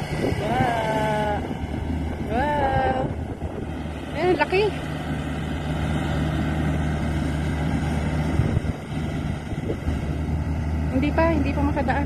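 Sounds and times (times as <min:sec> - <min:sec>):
harvester engine humming: 0:00.0 - 0:12.0.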